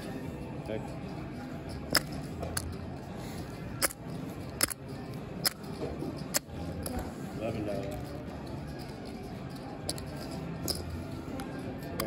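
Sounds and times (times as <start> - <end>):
murmur of voices: 0.0 - 12.0
poker chips clicking: 1.7 - 7.1, 7.8 - 11.0, 11.8 - 12.0.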